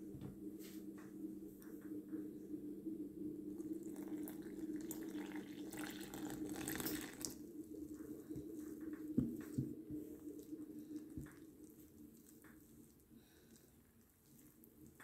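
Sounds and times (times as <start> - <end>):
steady low hum: 0.0 - 15.0
water trickling into flour: 3.6 - 15.0
fingers stirring dry flour: 6.4 - 15.0.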